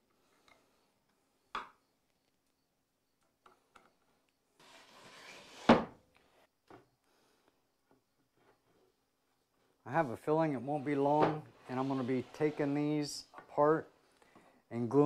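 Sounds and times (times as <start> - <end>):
board scraping across wood: 4.6 - 6.4, 10.0 - 13.1.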